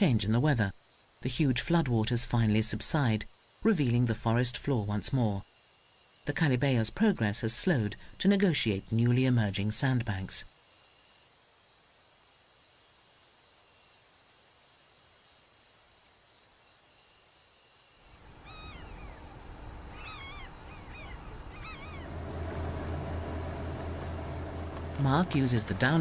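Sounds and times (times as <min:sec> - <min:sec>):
insects droning: 0:00.0 - 0:26.0
low steady hum: 0:18.1 - 0:26.0
short chirping animal calls: 0:18.2 - 0:22.2.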